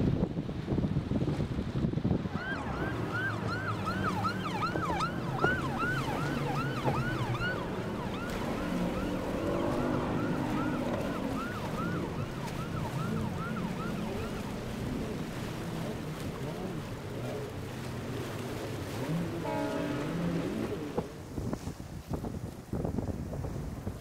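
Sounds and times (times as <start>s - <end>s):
low engine hum: 0.0s - 21.4s
boat siren yelping: 2.2s - 21.2s.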